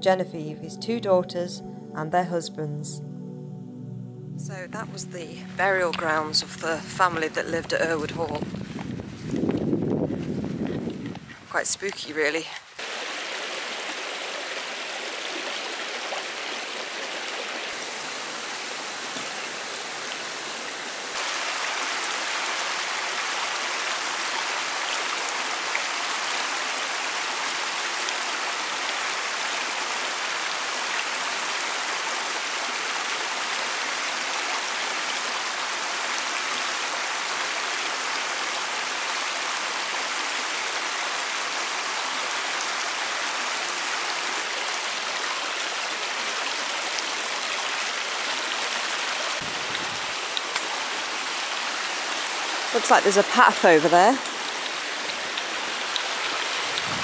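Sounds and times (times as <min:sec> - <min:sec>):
stream rushing over stones: 0:11.6 - 0:57.0.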